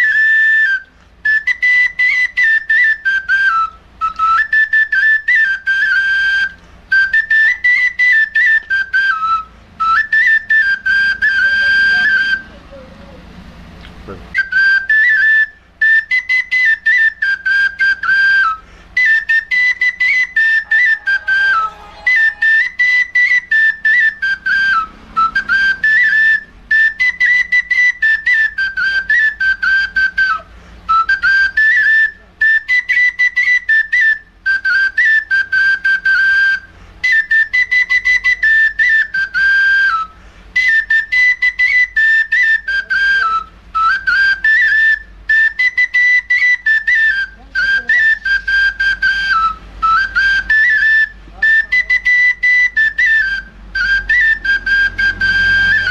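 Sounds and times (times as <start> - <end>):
flute playing fast folk melody: 0.0 - 12.9, 14.3 - 55.9.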